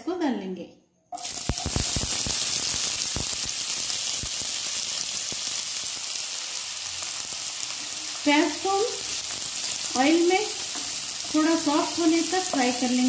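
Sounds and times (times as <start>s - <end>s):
onions sizzling in hot oil: 1.2s - 13.0s.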